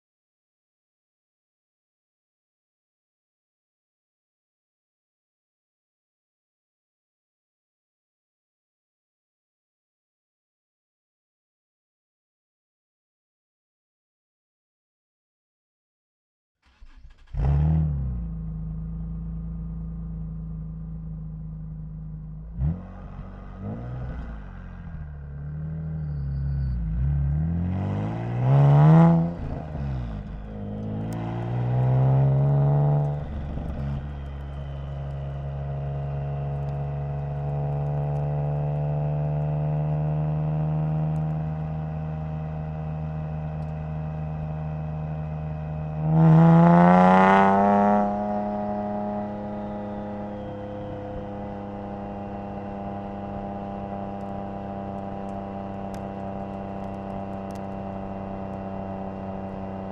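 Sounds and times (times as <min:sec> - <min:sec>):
car engine starting and revving: 0:16.6 - 0:59.9.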